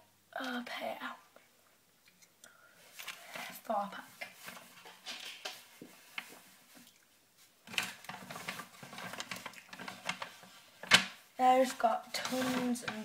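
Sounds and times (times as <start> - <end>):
rustling of packaging: 2.8 - 13.0
small crackles and clicks: 4.2 - 11.2.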